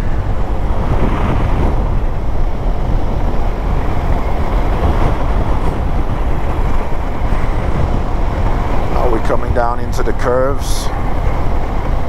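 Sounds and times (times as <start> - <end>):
wind rumble on microphone: 0.0 - 12.0.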